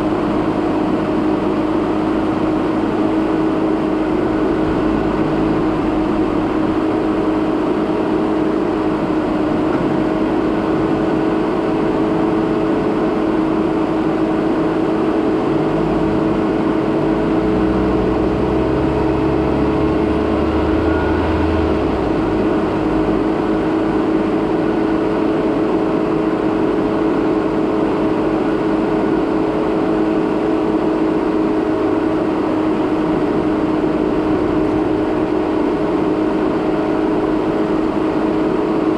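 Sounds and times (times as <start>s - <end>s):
car driving on dirt road: 0.0s - 38.9s
engine note rising: 4.0s - 7.8s, 15.3s - 25.2s.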